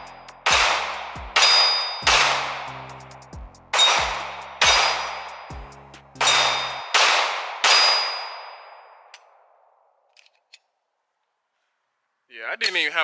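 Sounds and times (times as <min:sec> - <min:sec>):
steel target ringing: 0:00.0 - 0:02.9, 0:03.7 - 0:09.1
pistol shots: 0:00.4 - 0:02.9, 0:03.7 - 0:05.6, 0:06.2 - 0:09.4
faint gun clicks: 0:10.0 - 0:11.7.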